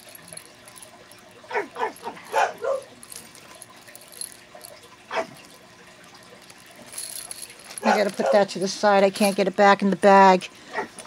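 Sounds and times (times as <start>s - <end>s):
dog barking: 1.5s - 3.0s, 5.1s - 5.4s, 7.8s - 8.5s, 10.7s - 11.0s.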